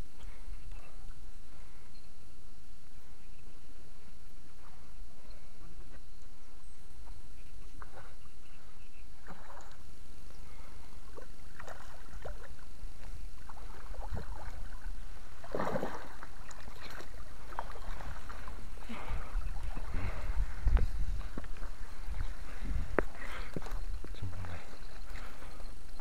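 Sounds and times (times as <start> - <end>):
fish splashing and thrashing: 10.5 - 26.0
water sloshing against concrete: 13.5 - 22.2.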